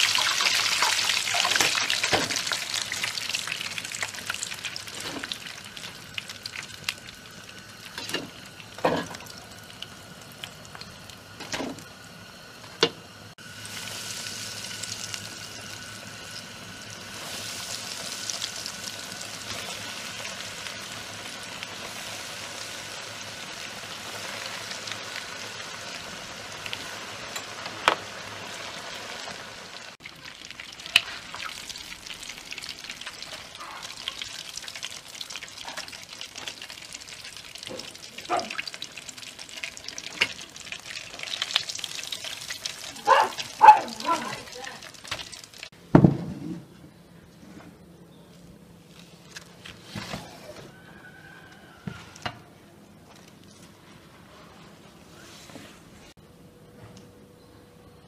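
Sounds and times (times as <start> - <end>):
food sizzling in oil: 0.0 - 45.7.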